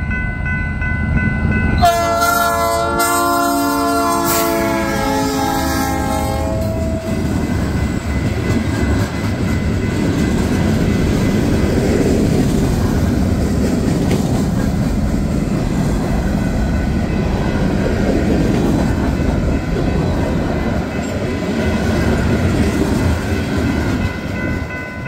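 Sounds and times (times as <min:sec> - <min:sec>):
crossing warning bell ringing: 0:00.0 - 0:13.8, 0:14.4 - 0:25.0
freight train wheels rumbling: 0:00.0 - 0:25.0
wheel clickety-clack: 0:07.3 - 0:15.9.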